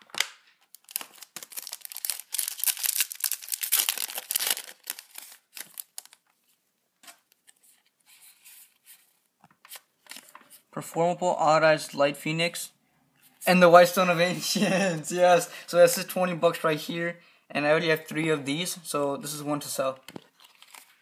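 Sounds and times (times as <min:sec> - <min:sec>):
cards rustling: 0:00.0 - 0:10.6, 0:20.1 - 0:21.0
foil wrapper tearing and crinkling: 0:00.1 - 0:06.2.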